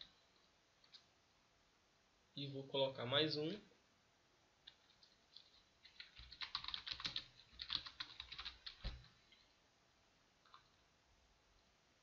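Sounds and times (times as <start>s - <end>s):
computer keyboard typing: 4.6s - 9.1s, 10.4s - 10.8s.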